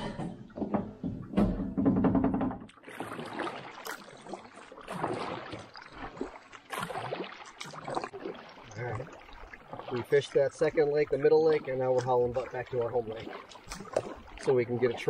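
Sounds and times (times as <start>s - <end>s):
canoe paddle splashing in water: 2.6s - 15.0s.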